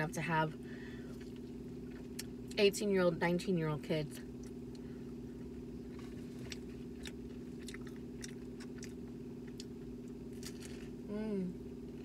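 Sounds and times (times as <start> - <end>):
low hum: 0.0 - 12.0
person chewing food: 1.0 - 2.6, 4.3 - 11.0.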